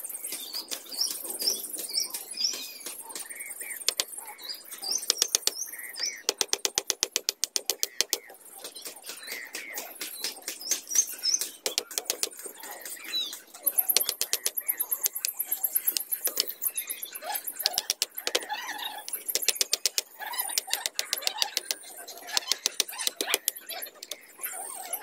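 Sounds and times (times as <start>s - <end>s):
birds chirping: 2.7s - 25.0s
bamboo poles being hammered: 3.9s - 4.1s, 5.1s - 5.6s, 6.2s - 10.8s, 11.5s - 13.0s, 14.0s - 16.5s, 17.6s - 18.5s, 19.1s - 24.2s.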